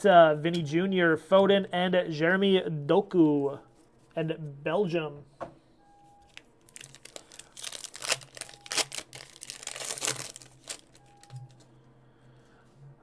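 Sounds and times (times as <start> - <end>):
foil wrapper tearing and crinkling: 6.3 - 11.3
cards rustling: 6.3 - 11.6.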